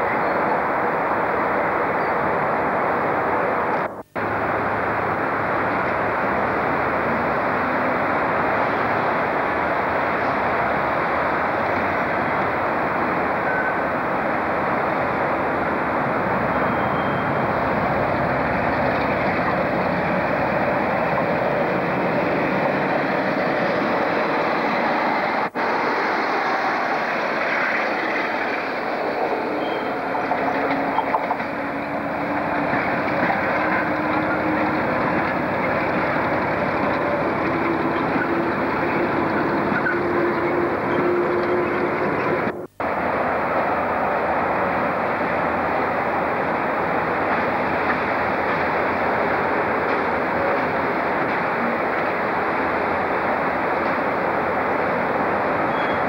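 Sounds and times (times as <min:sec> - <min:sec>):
diesel locomotive engine: 0:00.0 - 0:56.0
wheels rumbling on track: 0:00.0 - 0:56.0.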